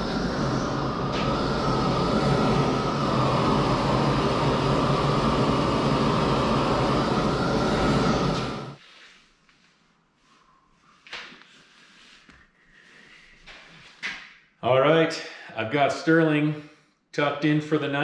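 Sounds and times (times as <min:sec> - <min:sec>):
gas torch burning: 0:00.0 - 0:08.8.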